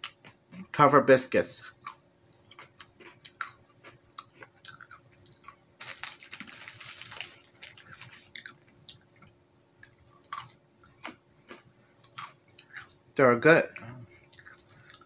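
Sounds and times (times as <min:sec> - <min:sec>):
snack packet rustling: 0:05.2 - 0:09.0
crunchy biting and chewing: 0:09.8 - 0:13.0.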